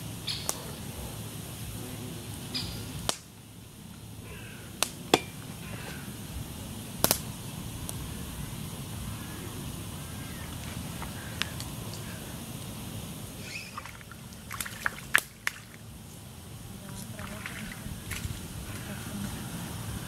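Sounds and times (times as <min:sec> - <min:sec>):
low background noise: 0:00.0 - 0:20.0
short bird chirps: 0:13.4 - 0:13.9.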